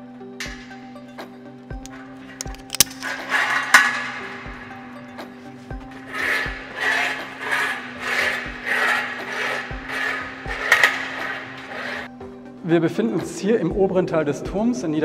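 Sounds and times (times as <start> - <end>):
rhythmic rasping on ladder: 1.8 - 12.1.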